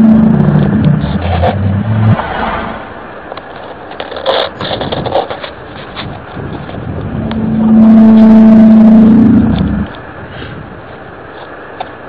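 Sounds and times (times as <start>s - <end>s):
crackling rustle with clicks: 0.0s - 1.6s, 3.2s - 10.2s, 10.8s - 12.0s
low steady horn-like tone: 0.0s - 1.8s, 7.1s - 9.9s.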